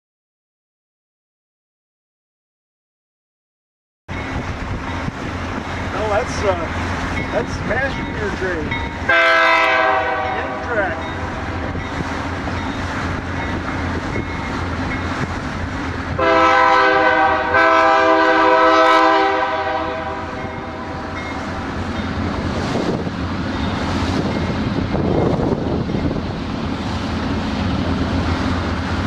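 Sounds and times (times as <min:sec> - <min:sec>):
train rumbling on rails: 0:04.1 - 0:29.0
train horn blasts: 0:09.1 - 0:11.5, 0:16.1 - 0:21.4.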